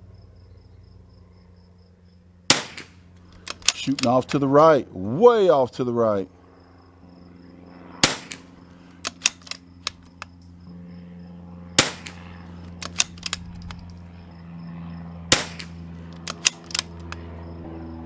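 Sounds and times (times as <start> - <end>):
rifle shots: 2.5 - 4.2, 8.0 - 10.1, 11.8 - 13.8, 15.3 - 17.2
rifle bolt clicks: 3.2 - 4.4, 9.0 - 10.3, 12.0 - 13.9, 15.6 - 17.2.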